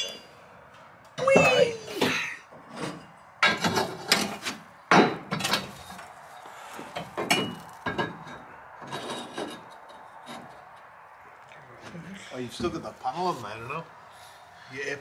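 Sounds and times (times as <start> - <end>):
metal parts and tools knocking: 2.7 - 5.7, 7.0 - 10.8.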